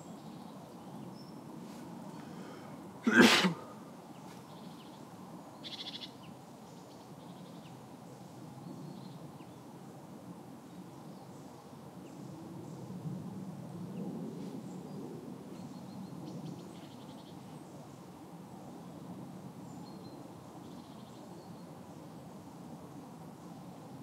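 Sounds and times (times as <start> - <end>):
faint bird calls: 5.6 - 6.3.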